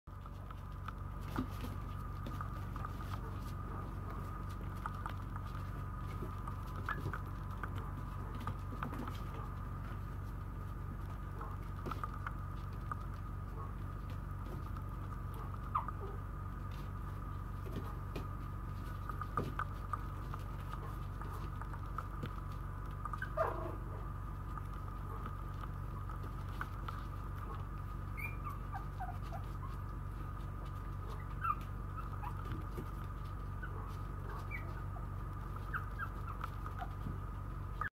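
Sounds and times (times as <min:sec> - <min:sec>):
steady hum: 0:00.1 - 0:37.9
puppies whimpering: 0:15.6 - 0:16.2, 0:23.1 - 0:23.9, 0:28.0 - 0:30.3, 0:30.9 - 0:37.9.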